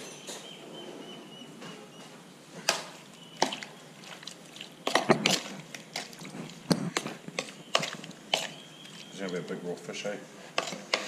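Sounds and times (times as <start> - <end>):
raw fish stirred by hand in bowl: 2.6 - 11.0.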